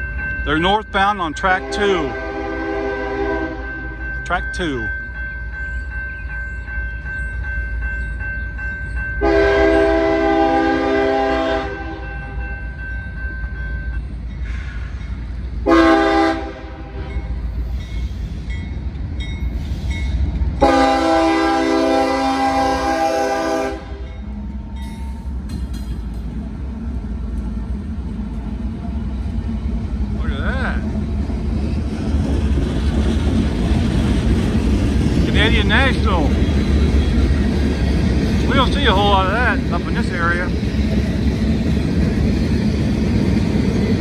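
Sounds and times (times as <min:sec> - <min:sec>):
diesel locomotive engines rumbling: 0:00.0 - 0:44.0
locomotive air horn blasts: 0:01.6 - 0:03.8, 0:09.2 - 0:12.0, 0:15.6 - 0:17.3, 0:20.6 - 0:24.1.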